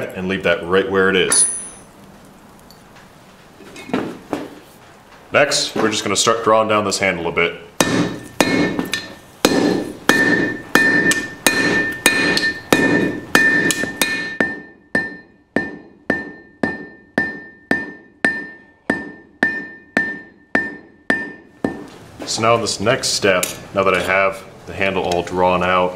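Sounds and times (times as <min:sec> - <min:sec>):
hammer beating steel on anvil: 0:01.3 - 0:01.9, 0:07.8 - 0:21.9.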